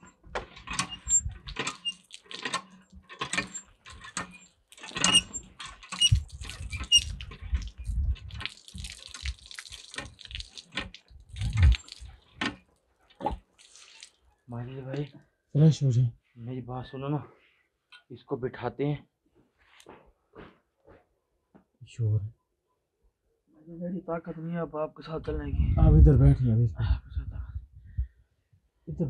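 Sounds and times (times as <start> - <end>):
water pouring and splashing: 0.6 - 14.3.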